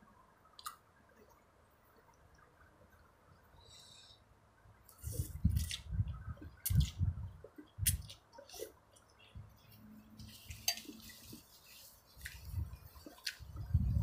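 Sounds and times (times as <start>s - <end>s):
chewing and mouth sounds: 12.2s - 13.6s.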